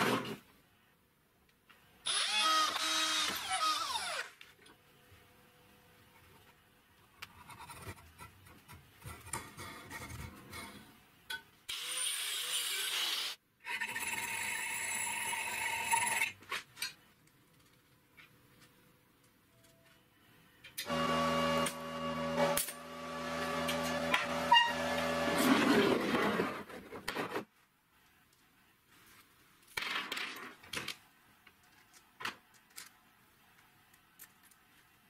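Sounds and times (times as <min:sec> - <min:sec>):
power drill boring steel: 0:02.1 - 0:04.3.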